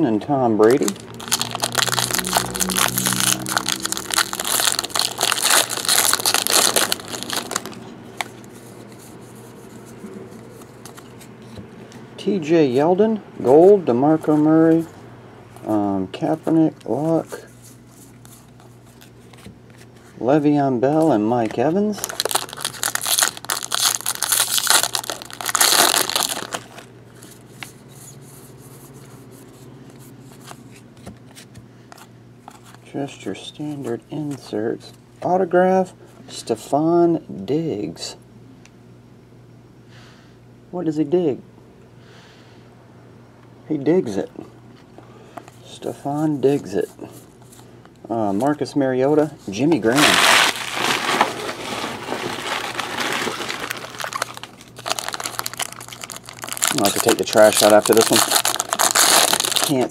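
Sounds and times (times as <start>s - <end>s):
cards being leafed through: 0.6s - 11.6s, 22.0s - 27.8s, 49.6s - 59.9s
foil wrapper crinkling: 0.7s - 8.4s, 21.9s - 26.9s, 49.8s - 59.9s.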